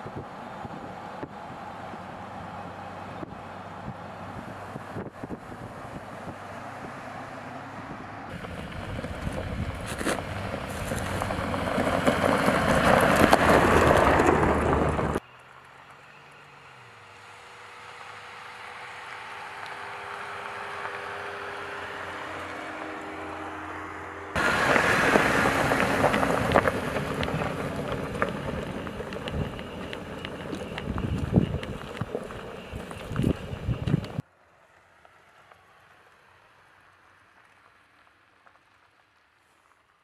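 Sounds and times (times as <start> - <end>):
engine hum: 0.0 - 39.1
tyres on gravel: 8.3 - 39.9.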